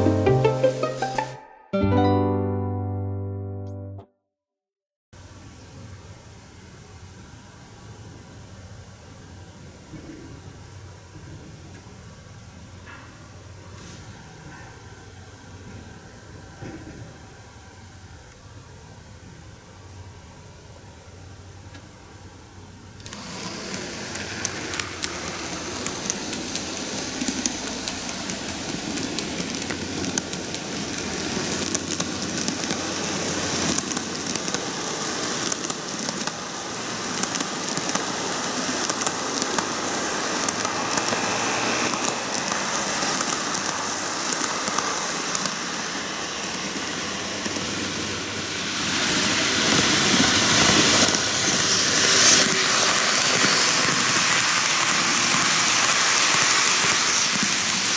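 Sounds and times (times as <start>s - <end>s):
model trains rattling on track: 23.0s - 57.9s.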